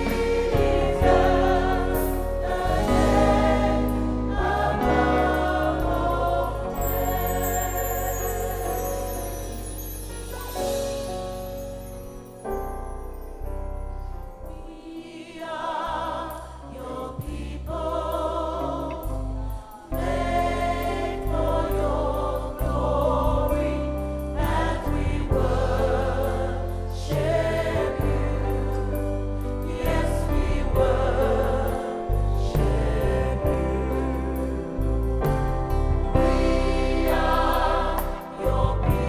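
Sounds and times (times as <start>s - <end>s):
bass line: 0.0s - 9.9s, 16.9s - 39.0s
gospel choir singing: 0.0s - 12.2s, 14.4s - 39.0s
drum kit with crash cymbals: 0.0s - 12.9s.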